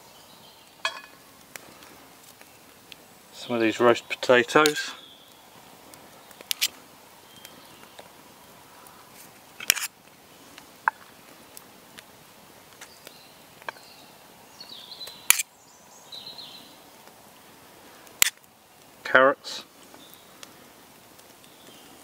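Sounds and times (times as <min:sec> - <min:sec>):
faint birds chirping: 0:00.0 - 0:09.4, 0:12.5 - 0:22.0.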